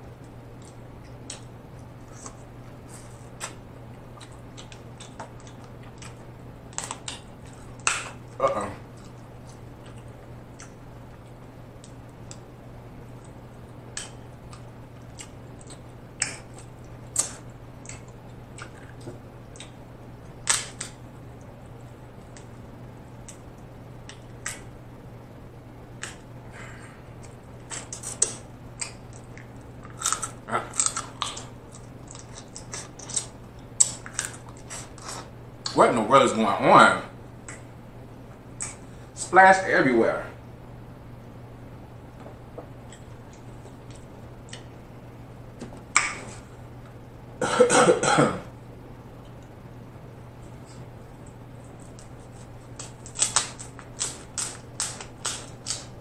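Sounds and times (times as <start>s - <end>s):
wet eating smacks: 13.2s - 19.8s
man coughing: 47.4s - 48.5s.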